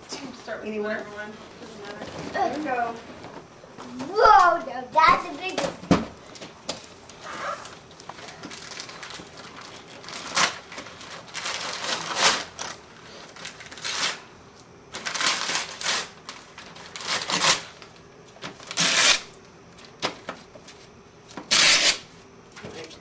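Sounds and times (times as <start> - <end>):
wrapping paper ripping: 7.2 - 14.3, 14.9 - 19.3, 21.5 - 22.0.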